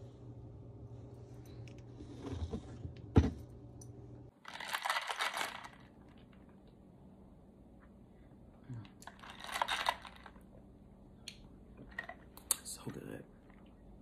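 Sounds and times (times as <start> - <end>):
clatter of small hard objects: 4.4 - 6.4, 9.0 - 10.4.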